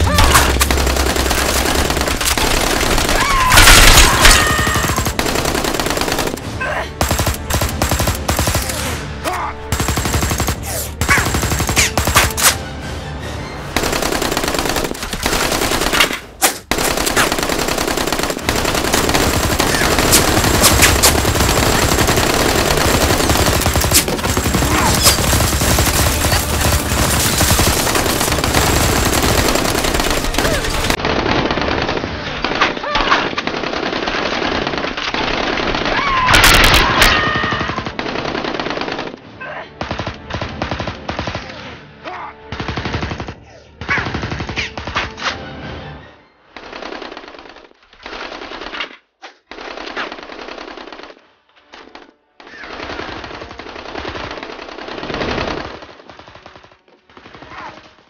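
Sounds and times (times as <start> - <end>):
music: 0.0 - 47.7, 49.6 - 58.0
machine-gun fire: 0.5 - 8.9, 9.7 - 12.4, 16.6 - 32.1.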